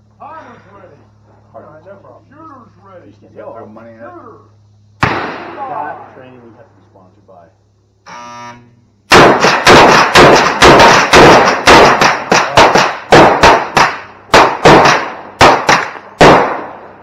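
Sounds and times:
handgun shots echoing: 0:05.0 - 0:05.7, 0:09.1 - 0:17.0.

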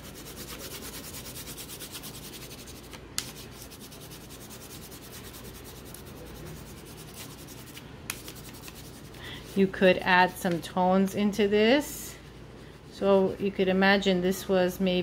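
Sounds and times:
crayon rubbing on paper: 0:00.0 - 0:09.7.

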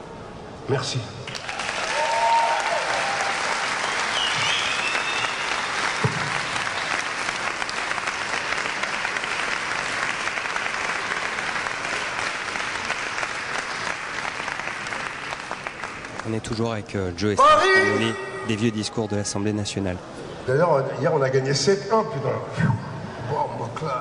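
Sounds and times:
crowd applauding: 0:01.3 - 0:16.9
thump: 0:06.0 - 0:06.4.

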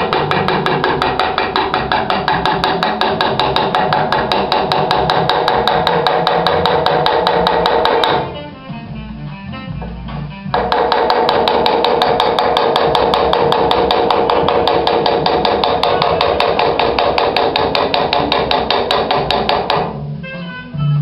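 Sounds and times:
hammer tapping chisel on steel: 0:00.0 - 0:08.3, 0:10.5 - 0:20.0.

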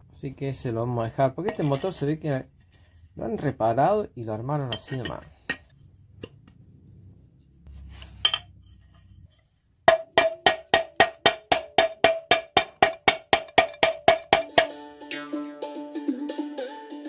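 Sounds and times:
wood-block percussive music: 0:09.9 - 0:17.0.

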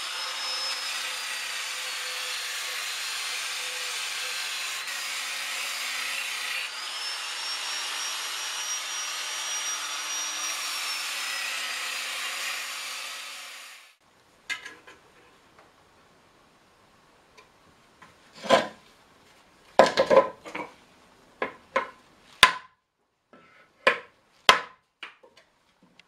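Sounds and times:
angle grinder sanding wood: 0:00.0 - 0:14.0.

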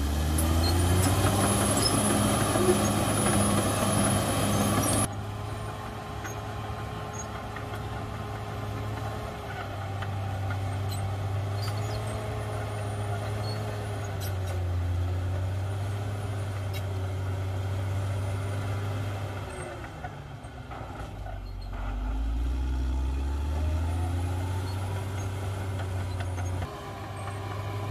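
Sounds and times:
wavering engine whine: 0:00.0 - 0:08.1
bulldozer diesel engine droning: 0:00.0 - 0:27.9.

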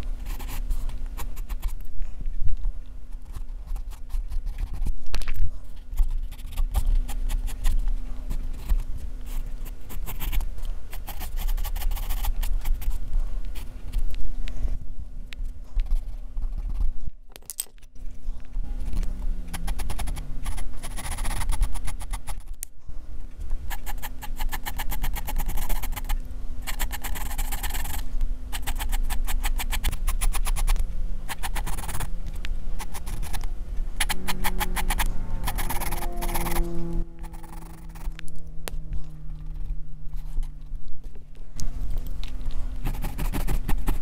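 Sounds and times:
pencil scratching on paper: 0:00.0 - 0:01.8, 0:03.2 - 0:05.0, 0:05.8 - 0:13.8, 0:19.5 - 0:22.5, 0:23.7 - 0:32.1, 0:32.8 - 0:38.2, 0:42.8 - 0:44.0.

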